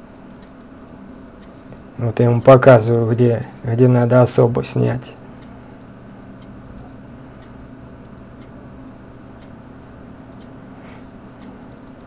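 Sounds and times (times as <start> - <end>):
faint ticks: 6.4 - 9.6, 10.3 - 10.6.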